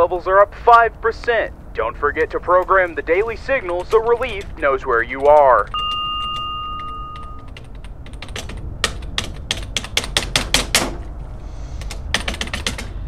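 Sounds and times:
steady electronic beep tone: 5.7s - 7.6s.

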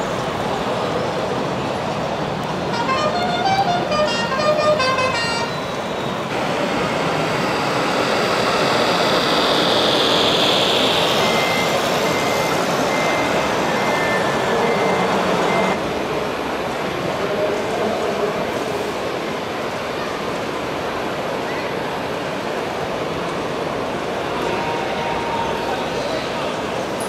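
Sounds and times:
simulated truck engine noise: 0.0s - 27.0s
high melodic horn tones: 2.7s - 5.7s, 24.4s - 25.7s
short reversing beeps: 5.5s - 15.8s.

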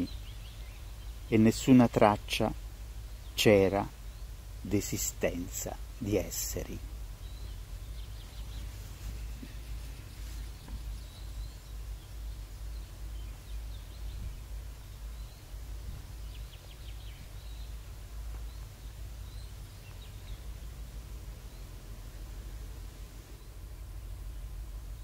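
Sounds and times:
small birds chirping: 0.0s - 25.0s
steady low rumble: 0.0s - 25.0s.

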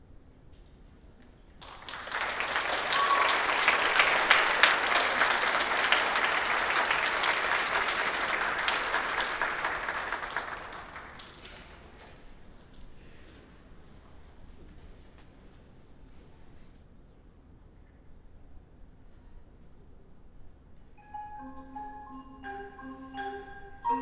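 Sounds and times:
audience applauding: 1.6s - 12.0s.

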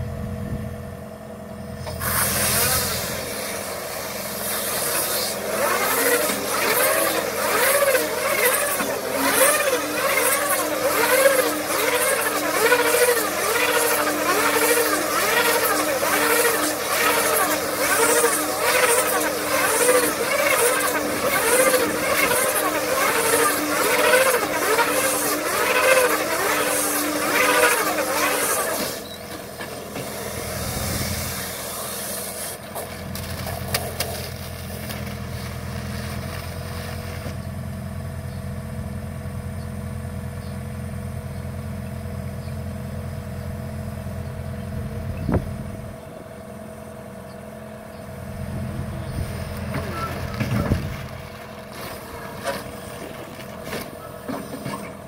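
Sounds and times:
hydraulic whine: 0.0s - 55.0s
tractor engine running: 0.0s - 55.0s
bale wrapper arms whirring: 1.8s - 38.2s, 48.2s - 55.0s.

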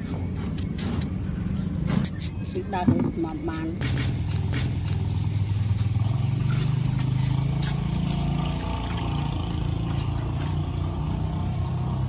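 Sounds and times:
vehicle engine droning: 0.0s - 12.0s
knife cutting fruit: 0.5s - 3.2s.

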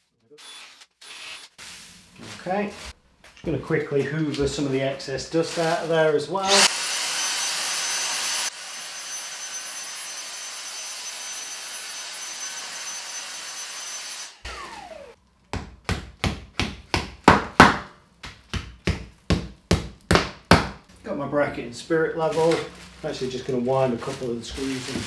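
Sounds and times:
handheld vacuum whining: 6.4s - 15.2s.

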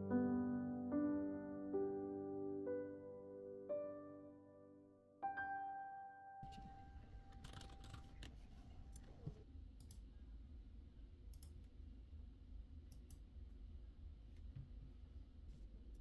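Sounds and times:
piano note: 0.0s - 7.4s
low steady hum: 6.4s - 16.0s
computer mouse clicks: 7.3s - 10.1s, 11.3s - 11.7s, 12.9s - 13.2s.

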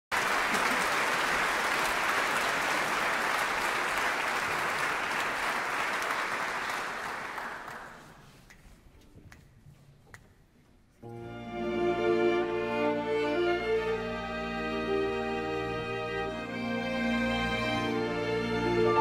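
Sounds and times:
audience applauding: 0.1s - 8.4s.

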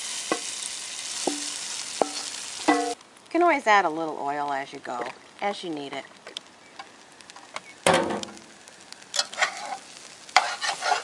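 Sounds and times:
food frying in hot oil: 0.0s - 11.0s
metal spatula scraping a pot: 9.2s - 11.0s.

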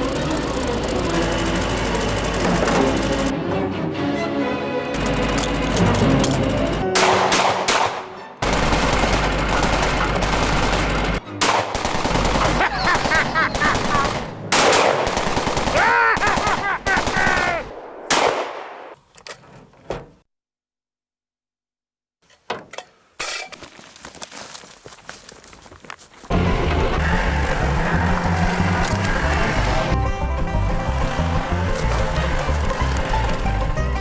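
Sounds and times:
machine gun firing: 7.0s - 18.9s.

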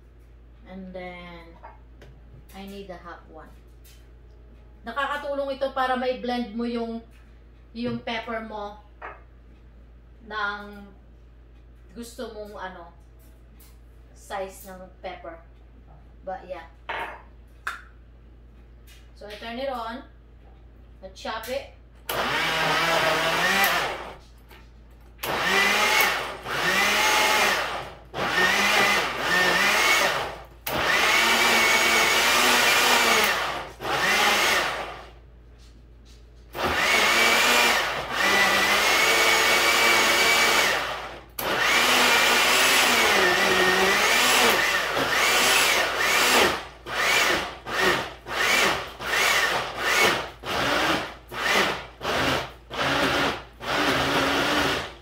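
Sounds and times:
blender motor whine: 22.1s - 24.2s, 25.2s - 35.1s, 36.6s - 55.0s.

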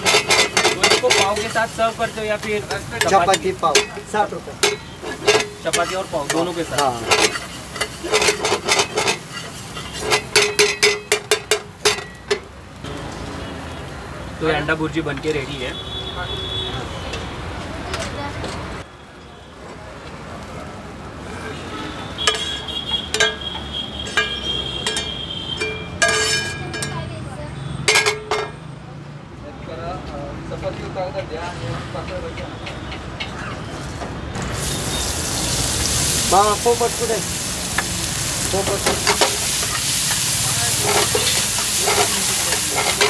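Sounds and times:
metal spatula clinking on wok: 0.0s - 12.5s, 22.2s - 27.1s, 27.9s - 28.6s, 38.6s - 43.0s
onions sizzling in hot oil: 0.0s - 15.6s, 34.4s - 43.0s.

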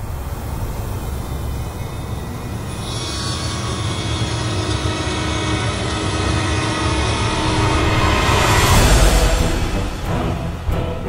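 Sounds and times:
saw blade cutting hiss: 0.4s - 9.4s
band saw running: 2.1s - 9.9s.

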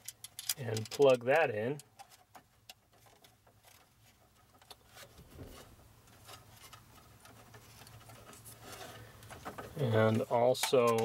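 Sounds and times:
wiring connectors clicking: 10.5s - 11.0s.

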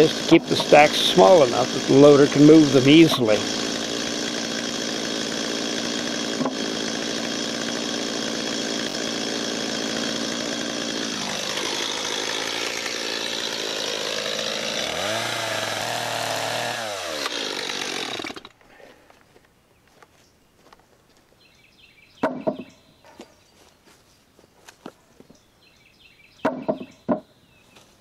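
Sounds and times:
chainsaw engine running: 0.0s - 18.6s.

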